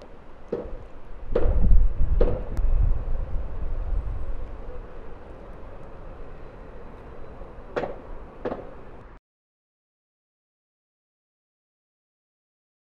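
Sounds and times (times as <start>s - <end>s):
storm wind buffeting microphone: 1.0s - 6.2s.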